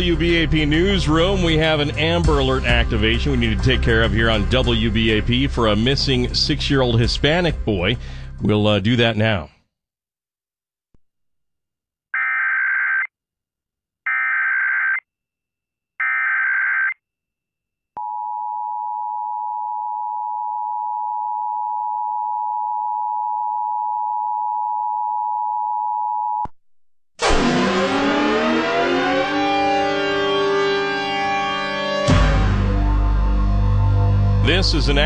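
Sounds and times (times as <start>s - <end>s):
siren sound effect: 27.2s - 35.0s.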